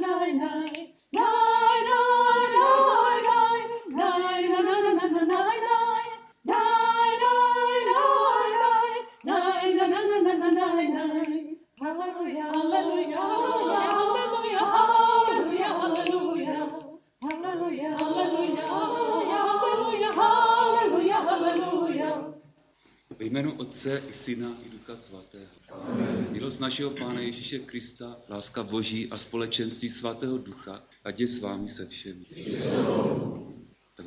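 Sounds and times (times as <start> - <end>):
group singing a hymn unaccompanied: 0.0 - 22.5, 25.7 - 27.3, 32.3 - 33.7.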